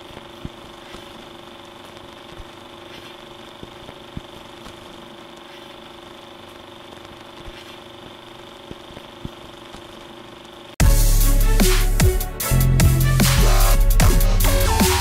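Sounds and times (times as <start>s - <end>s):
crackling pops: 0.0s - 10.2s
film projector running: 0.0s - 10.8s.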